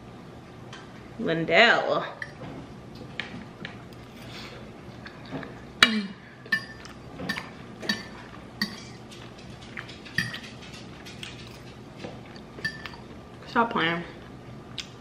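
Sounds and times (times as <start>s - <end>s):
cutlery clinking against plate: 6.5s - 11.8s, 12.6s - 13.0s.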